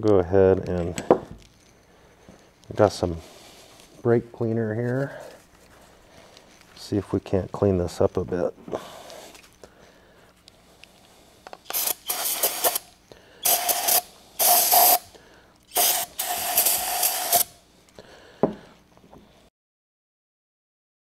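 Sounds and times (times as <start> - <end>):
aerosol spray hissing: 11.6 - 15.1, 15.7 - 17.6.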